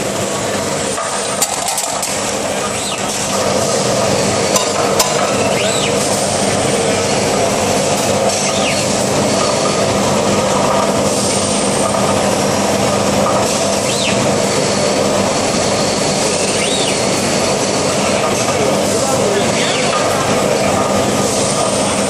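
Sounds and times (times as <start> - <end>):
machine running with low hum: 0.0 - 22.0
rising and falling whistles: 16.5 - 17.0.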